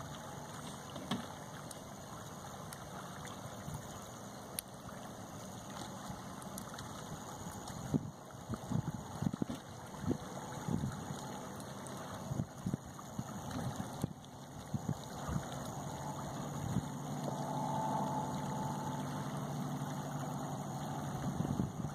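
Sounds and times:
motor engine humming: 5.4s - 21.9s
wind buffeting microphone: 7.6s - 11.3s, 12.1s - 21.9s.

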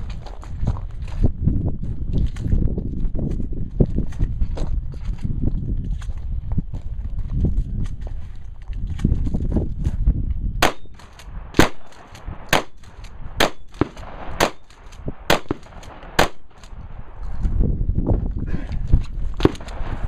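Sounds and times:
gunshots: 10.6s - 16.8s.

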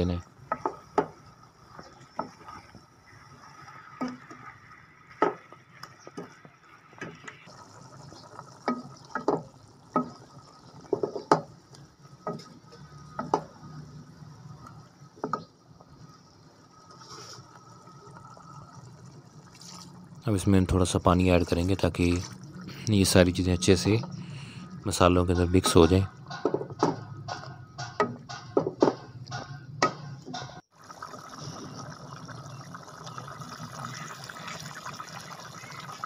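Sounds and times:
wooden spoon knocking a metal pot: 0.5s - 1.2s, 8.6s - 10.2s, 25.3s - 30.6s.

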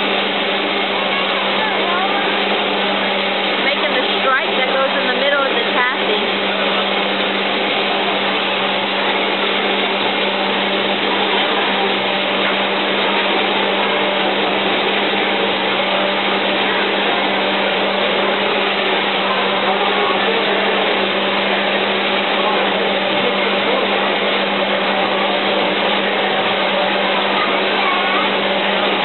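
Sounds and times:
machine whirring with low hum: 0.0s - 29.0s.

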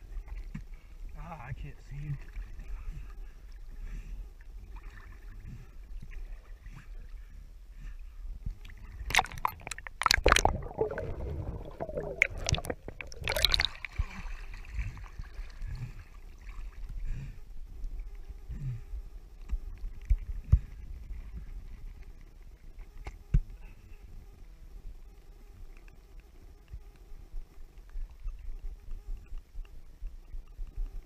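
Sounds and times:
pool water sloshing and splashing: 8.7s - 17.0s
muffled underwater gurgling: 8.7s - 17.4s.

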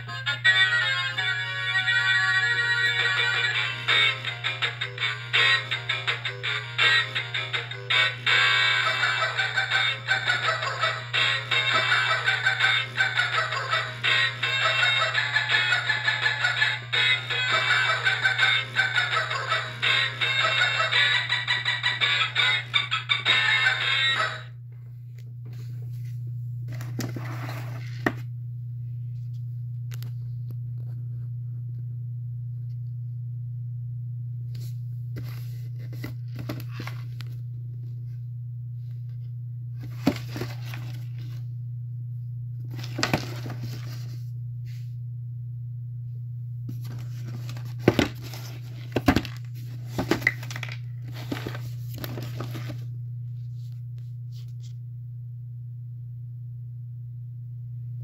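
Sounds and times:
steady low hum: 0.0s - 58.0s
cardboard box rustling and crinkling: 39.8s - 41.3s, 42.7s - 44.0s, 46.8s - 52.8s.

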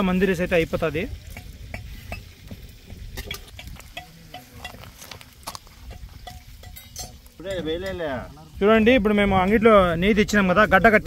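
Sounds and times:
low rumble of fire: 0.0s - 11.0s
metal utensil clinking in a pot: 3.1s - 8.2s.

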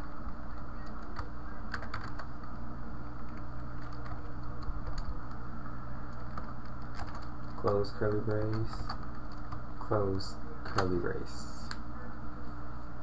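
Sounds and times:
computer keyboard keystrokes: 0.0s - 2.6s, 3.2s - 5.4s, 6.1s - 9.6s
steady low hum: 0.0s - 13.0s.

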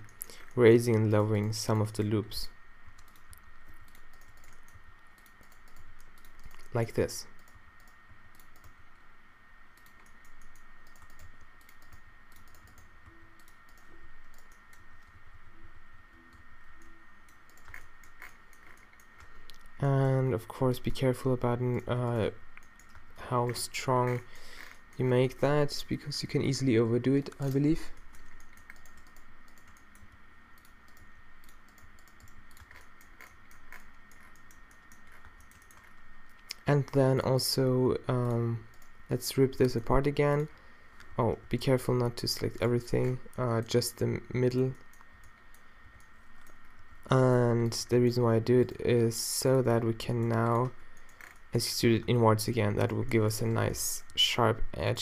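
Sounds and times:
faint high whine: 0.0s - 55.0s
faint high-pitched hum: 0.0s - 55.0s
keyboard and mouse clicking: 3.0s - 6.8s, 7.4s - 8.8s, 9.8s - 15.2s, 16.3s - 19.7s, 22.6s - 25.1s, 27.2s - 37.0s.

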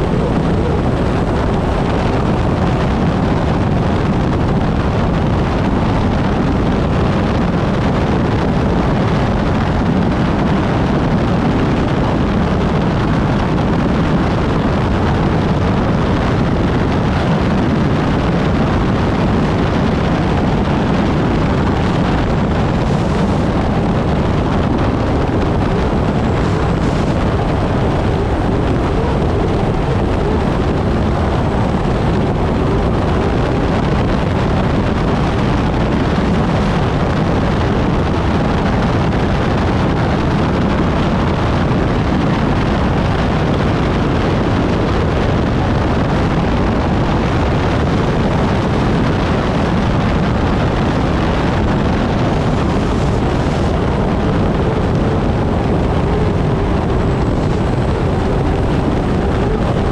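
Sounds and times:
turbine engine and wind rush: 0.0s - 59.9s.

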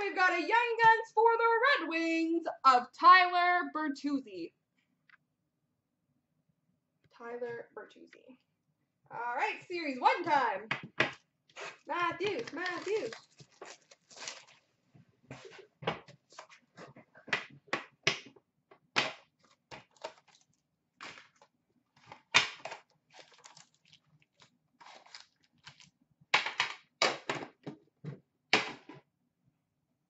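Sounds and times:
foil card packs crinkling: 11.7s - 14.7s, 19.4s - 21.5s, 22.1s - 25.9s.

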